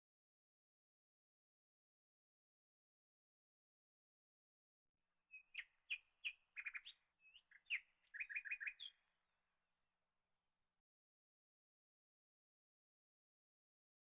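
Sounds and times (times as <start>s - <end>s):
small bird chirping and trilling: 5.3s - 9.0s.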